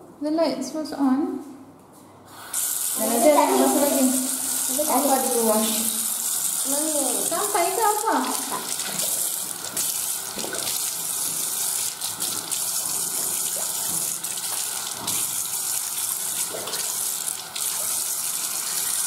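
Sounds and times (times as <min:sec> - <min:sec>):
tap running into sink: 0:08.2 - 0:15.4.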